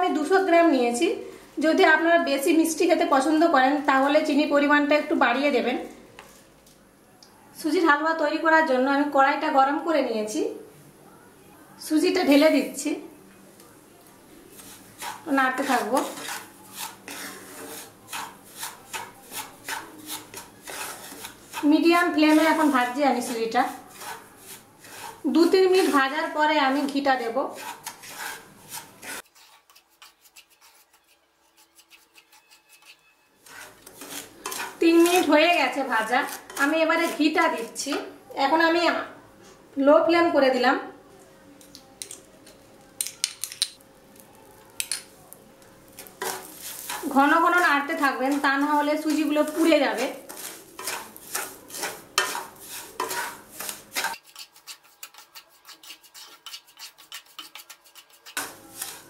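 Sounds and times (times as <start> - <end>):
spatula scraping semolina in pan: 14.4 - 38.1, 45.8 - 59.0.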